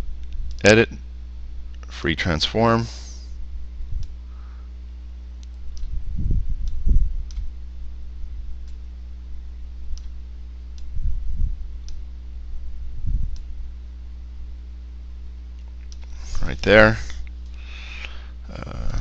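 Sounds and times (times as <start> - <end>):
low electrical hum: 0.0 - 19.0
computer mouse clicking: 5.4 - 5.9.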